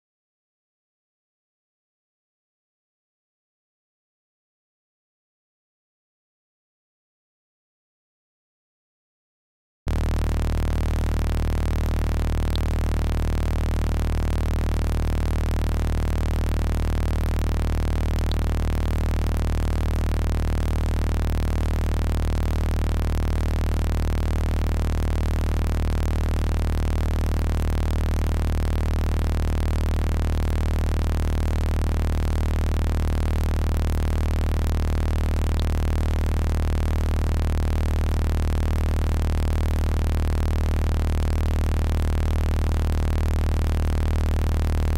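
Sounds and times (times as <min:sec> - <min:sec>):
deep steady hum: 0:09.9 - 0:44.9.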